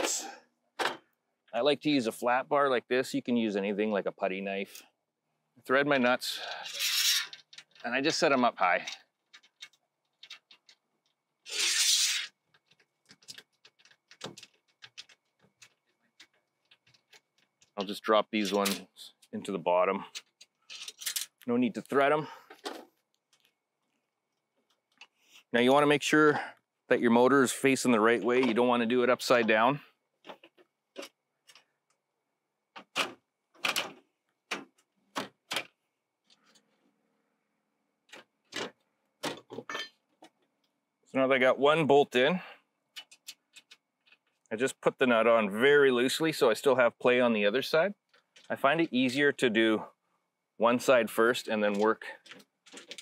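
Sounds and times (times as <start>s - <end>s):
metal scraping on metal: 6.4s - 7.9s, 11.5s - 12.3s.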